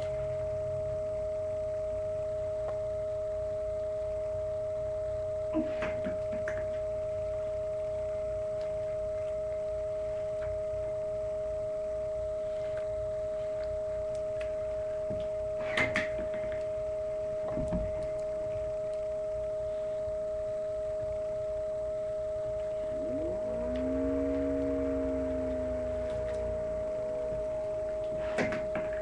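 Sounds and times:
steady two-pitch tone: 0:21.6 - 0:28.4
rising tone: 0:22.8 - 0:28.2.

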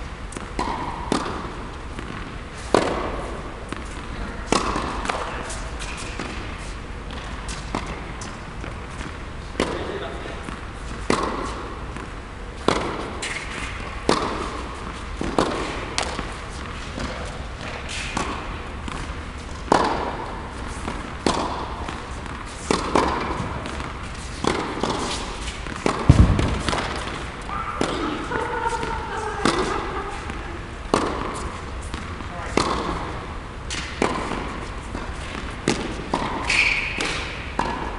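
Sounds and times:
tennis ball bouncing: 0:00.3 - 0:37.9
racket striking tennis ball: 0:00.4 - 0:37.9
heavy deep thump: 0:26.0 - 0:27.2.

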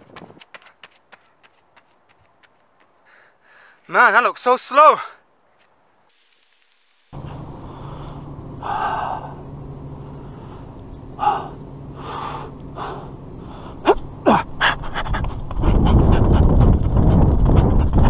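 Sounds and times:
wind on microphone: 0:00.0 - 0:00.4, 0:14.7 - 0:18.0
running footsteps: 0:00.0 - 0:04.0
man breathing hard: 0:03.0 - 0:03.9, 0:07.2 - 0:16.4.

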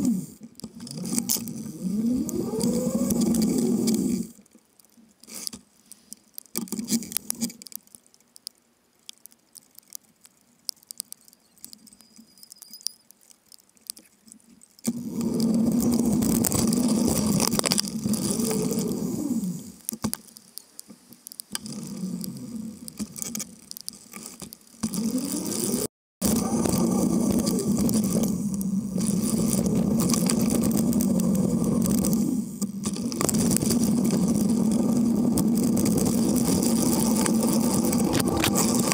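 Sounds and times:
bicycle tyres and drivetrain rumble: 0:00.0 - 0:04.4, 0:14.8 - 0:20.2, 0:21.0 - 0:38.9.

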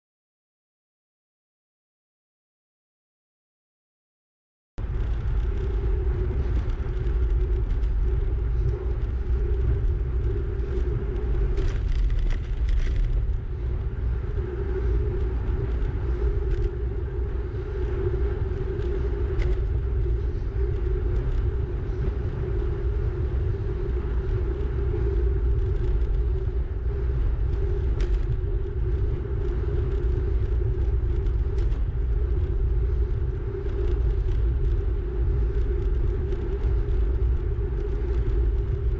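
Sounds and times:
wind buffeting microphone: 0:04.8 - 0:38.9.

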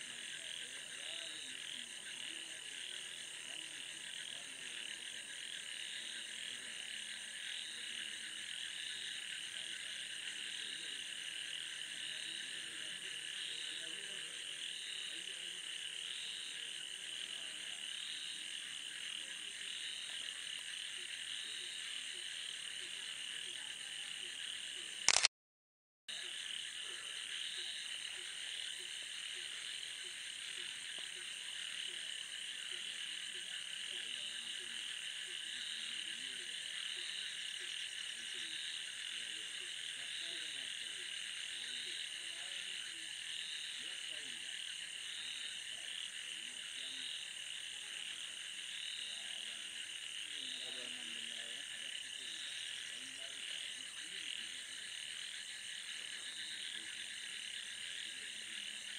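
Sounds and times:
frogs trilling and croaking: 0:00.0 - 0:25.2, 0:26.1 - 0:58.9
loud click: 0:25.1 - 0:25.3.

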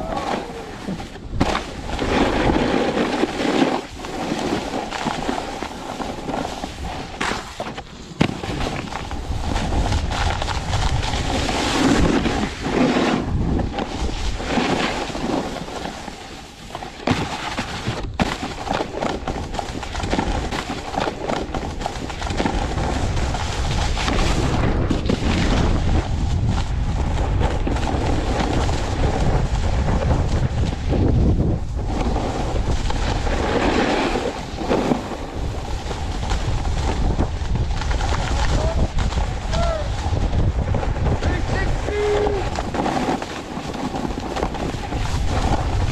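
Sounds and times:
snowboard scraping over snow: 0:00.0 - 0:45.9
wind buffeting microphone: 0:08.4 - 0:15.8, 0:17.8 - 0:45.9.

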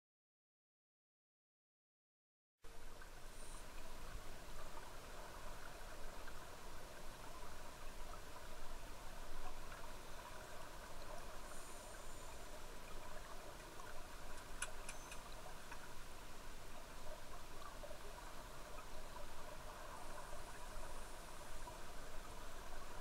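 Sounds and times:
underwater crackly hiss: 0:11.1 - 0:13.0
faint clicks: 0:13.8 - 0:15.9.

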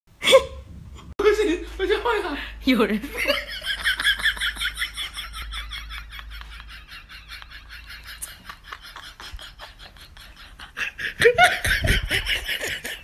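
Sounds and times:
person laughing: 0:03.1 - 0:13.0.

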